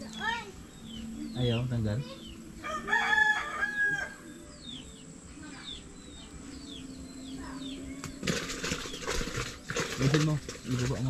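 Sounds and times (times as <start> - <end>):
rooster crowing: 2.6 - 4.3.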